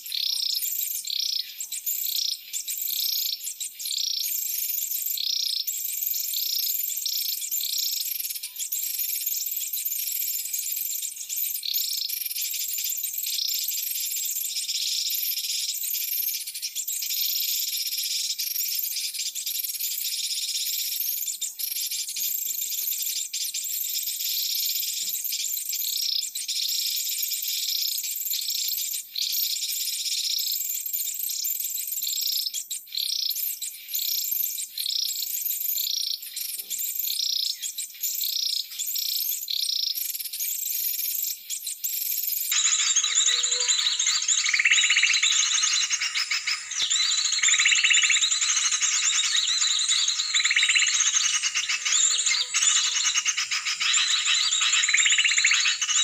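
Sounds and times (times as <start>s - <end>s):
high-pitched insect buzz: 42.5s - 50.6s
short high calls: 42.5s - 54.9s.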